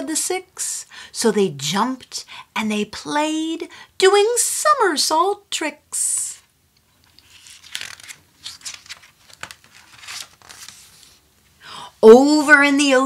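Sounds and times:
book pages rustling: 0:06.9 - 0:11.5.

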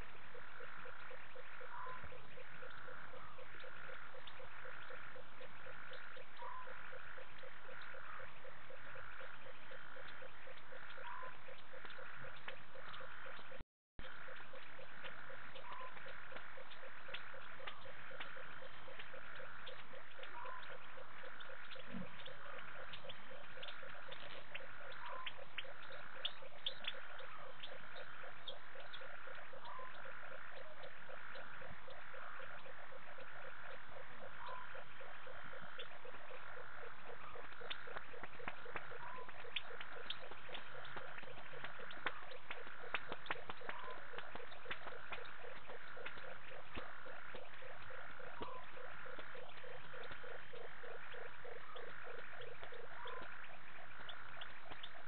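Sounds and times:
frogs pulsing: 0:00.0 - 0:55.0
scattered clicks: 0:37.6 - 0:50.8.

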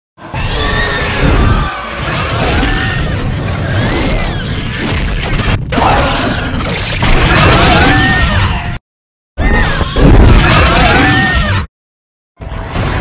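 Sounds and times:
giant monster screeches: 0:00.2 - 0:04.8.

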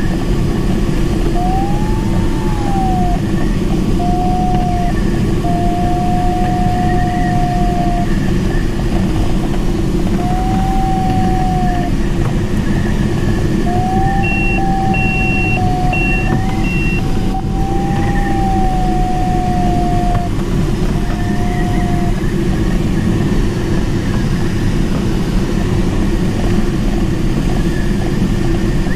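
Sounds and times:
airflow rushing around cockpit: 0:00.0 - 0:28.9
electronic variometer tone: 0:00.9 - 0:23.1
short high beeps: 0:14.2 - 0:17.0.

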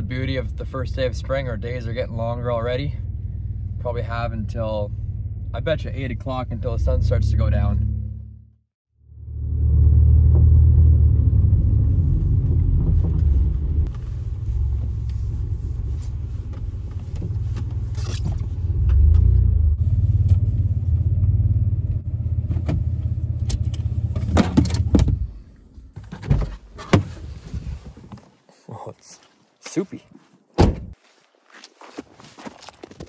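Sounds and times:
car engine rumble from inside: 0:00.0 - 0:26.0.

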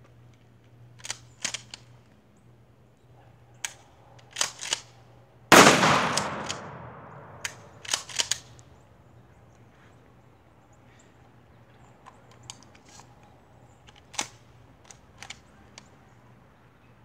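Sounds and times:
shotgun blast with echo: 0:05.5 - 0:07.7
sharp clicks and knocks: 0:06.1 - 0:08.5.

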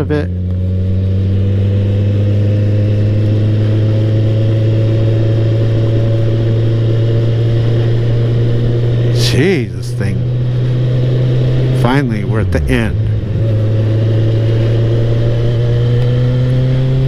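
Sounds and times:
motorcycle engine running: 0:00.0 - 0:17.0.

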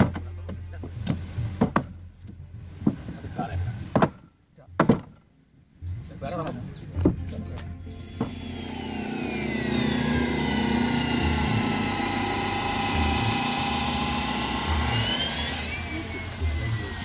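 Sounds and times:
small engine running: 0:08.0 - 0:17.0.

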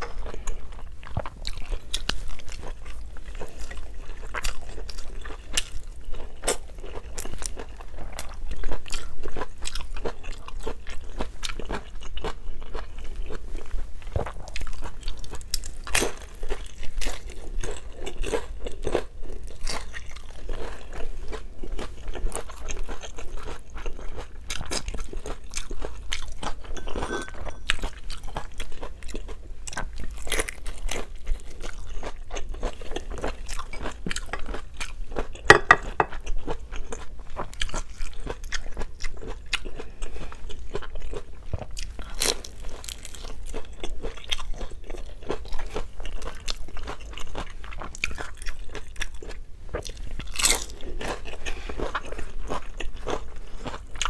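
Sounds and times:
crunching and chewing spring roll: 0:00.0 - 0:54.0.

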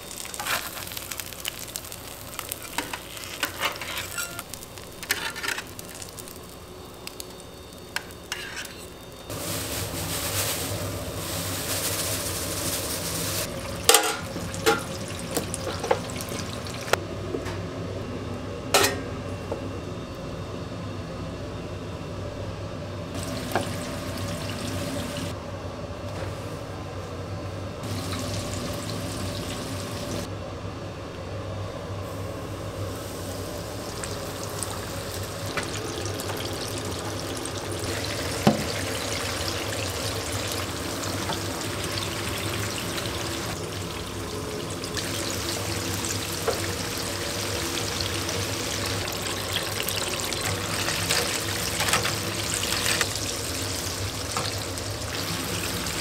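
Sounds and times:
food sizzling and frying: 0:00.0 - 0:17.0, 0:23.1 - 0:25.4, 0:27.8 - 0:30.3, 0:32.1 - 0:56.0
metal utensils and pans clinking: 0:02.6 - 0:05.8, 0:13.9 - 0:15.0, 0:18.8 - 0:19.1, 0:50.3 - 0:53.1.

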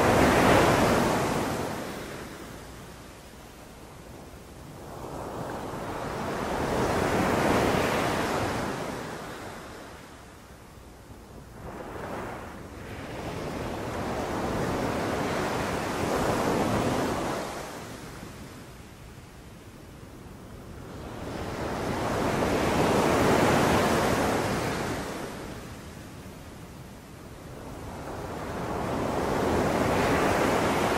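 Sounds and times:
sea waves breaking on beach: 0:28.0 - 0:30.9.

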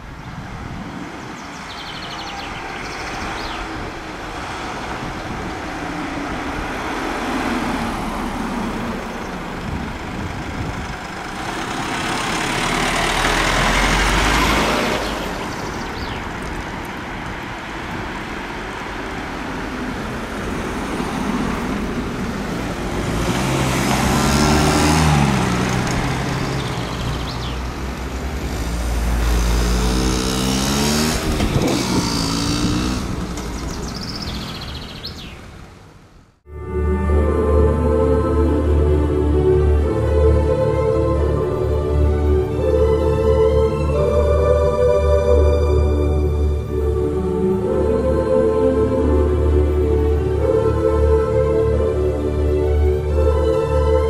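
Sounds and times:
vehicles driving past: 0:00.0 - 0:54.0.

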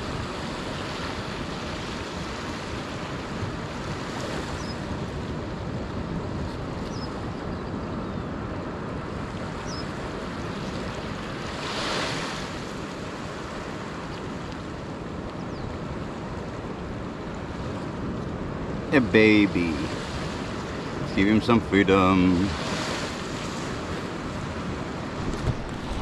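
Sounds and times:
wind buffeting microphone: 0:00.0 - 0:21.2, 0:22.2 - 0:26.0
ocean surf on beach: 0:00.0 - 0:26.0.

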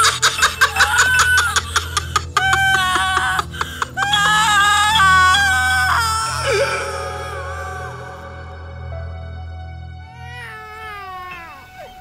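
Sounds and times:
woman sobbing and wailing: 0:00.0 - 0:08.8
low musical drone: 0:00.0 - 0:12.0.

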